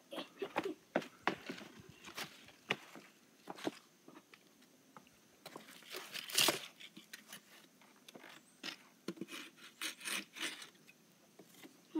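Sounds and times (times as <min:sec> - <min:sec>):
crunching over rocks and dry leaves: 0:05.4 - 0:08.9.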